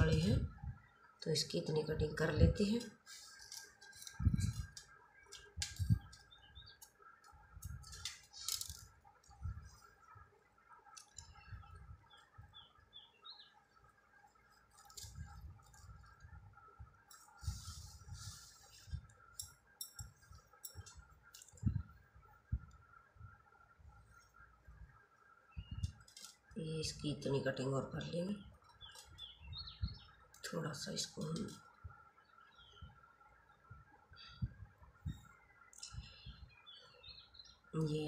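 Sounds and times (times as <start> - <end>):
faint steady hum: 0.0 - 38.0
bird chirping: 3.9 - 8.5, 9.2 - 15.0, 25.2 - 26.3, 27.0 - 38.0.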